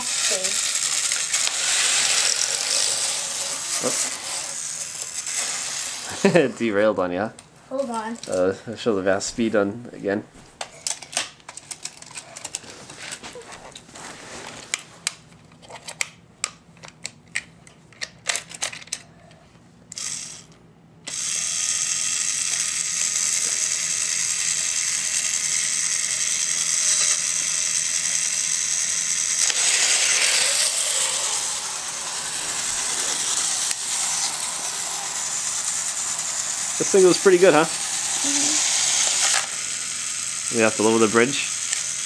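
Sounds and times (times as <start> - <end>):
toy train motor whirring: 0.0 - 6.6, 7.7 - 8.4, 10.6 - 13.7, 18.0 - 42.0
plastic toy train clicks: 10.8 - 12.6, 15.7 - 19.0, 41.5 - 42.0.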